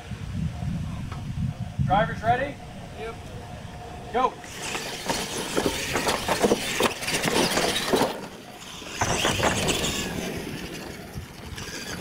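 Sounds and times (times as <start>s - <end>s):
toy trucks knocking on wooden ramps: 4.5s - 10.3s.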